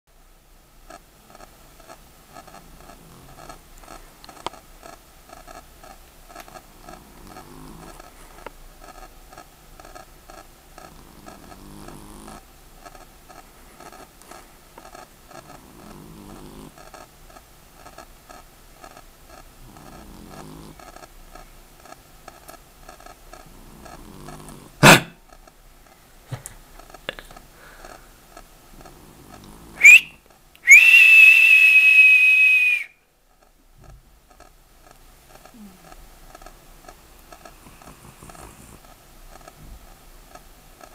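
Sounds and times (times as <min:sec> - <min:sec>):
fast steady ticking: 0:00.8 - 0:29.7, 0:33.3 - 0:40.9
cat snoring: 0:00.9 - 0:25.2, 0:26.8 - 0:29.8, 0:33.8 - 0:40.9
cat snorting: 0:00.9 - 0:25.5, 0:26.3 - 0:30.2, 0:34.9 - 0:39.7
cat snuffling: 0:37.3 - 0:39.4.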